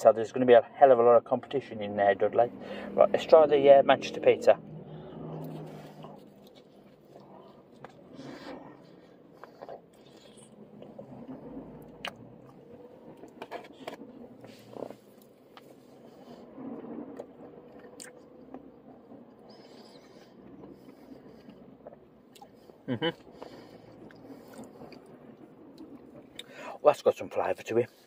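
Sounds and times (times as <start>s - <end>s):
man chewing pizza: 4.8s - 16.3s, 17.2s - 26.5s.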